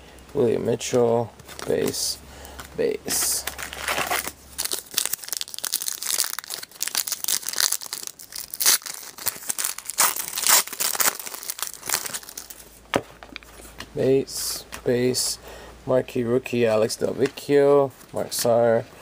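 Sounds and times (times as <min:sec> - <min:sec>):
wrapper crinkling and tearing: 0:03.1 - 0:12.7.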